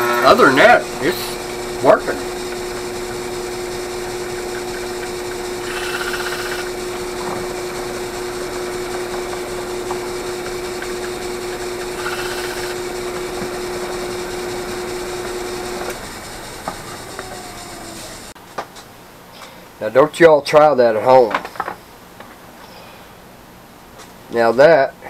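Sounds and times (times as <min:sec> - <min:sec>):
drill bit grinding: 0:00.0 - 0:18.4
drill press motor humming: 0:00.0 - 0:18.4.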